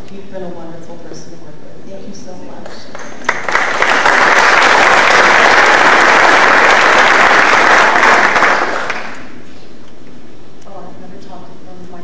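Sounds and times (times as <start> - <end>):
audience applauding: 3.0 - 9.4.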